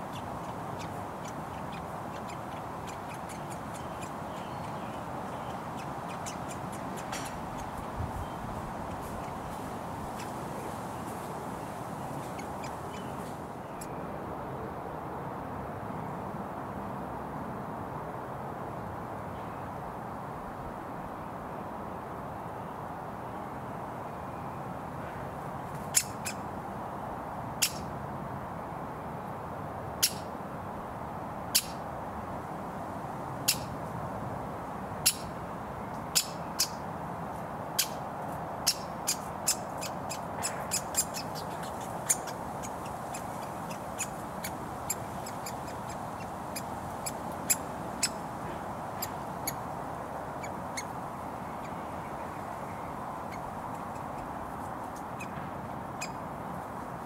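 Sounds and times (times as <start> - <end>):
woodpecker fledgling calling: 0.0 - 11.1, 12.0 - 13.9, 25.9 - 26.4, 27.6 - 27.8, 33.4 - 33.8, 36.1 - 36.8, 38.6 - 48.2, 49.0 - 49.6, 50.4 - 50.9, 56.0 - 56.2
road traffic noise: 0.0 - 57.0.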